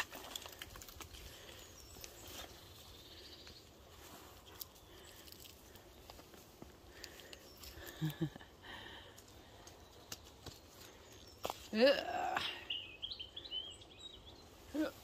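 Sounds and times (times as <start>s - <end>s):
twigs snapping: 0.0s - 2.6s, 4.4s - 8.2s, 9.1s - 11.7s
footsteps on mud and twigs: 0.0s - 8.4s, 9.0s - 11.8s.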